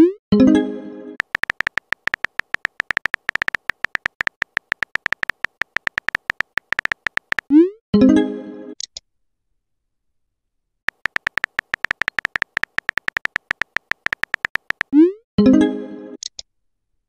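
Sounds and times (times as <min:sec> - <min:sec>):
keyboard tap ticks: 0:01.2 - 0:07.5, 0:10.9 - 0:14.9.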